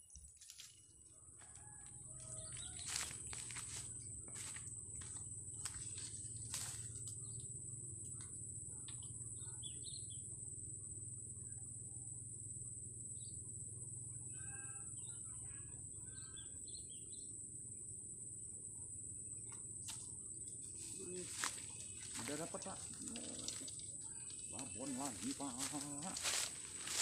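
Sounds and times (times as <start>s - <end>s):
high-pitched insect drone: 0.0s - 27.0s
birds chirping: 5.6s - 10.4s, 20.5s - 27.0s
faint clicks: 22.2s - 24.4s.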